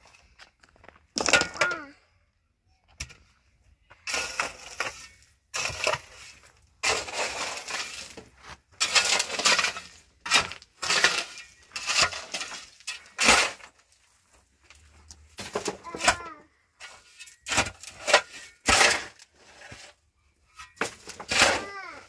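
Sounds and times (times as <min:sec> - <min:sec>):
shovel digging gravelly soil: 0:04.0 - 0:14.0, 0:14.8 - 0:22.0.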